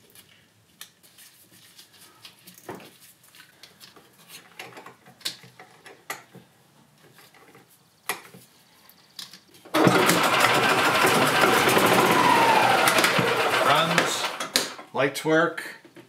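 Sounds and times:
golf cart engine running: 9.8s - 14.9s.

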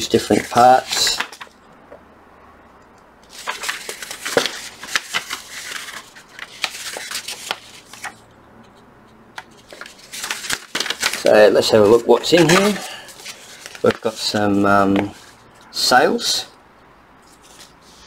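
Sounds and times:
paper rustling and crinkling: 0.0s - 1.6s, 3.2s - 8.2s, 9.4s - 15.4s, 17.2s - 18.0s.

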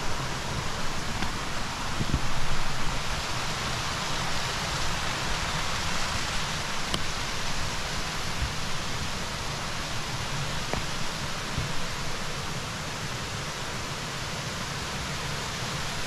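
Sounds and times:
brook rushing over stones: 0.0s - 12.4s.

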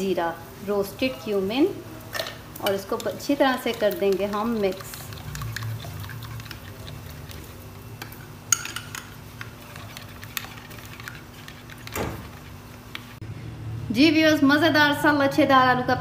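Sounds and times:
spoon stirring yogurt: 2.2s - 13.2s
spoon clinking against glass: 8.5s - 9.2s.

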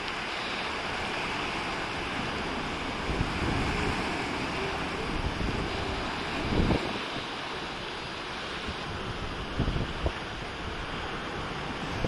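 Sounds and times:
surf washing on rocks: 0.0s - 12.0s
wind rumbling on microphone: 0.0s - 12.0s.

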